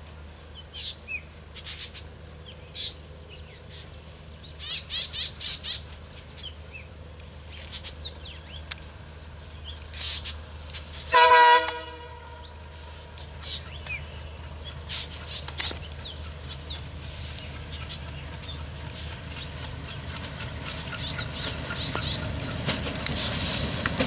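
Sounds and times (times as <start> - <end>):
train rumble: 0.0 - 24.0
birds chirping: 0.2 - 24.0
locomotive horn blast: 11.1 - 12.6.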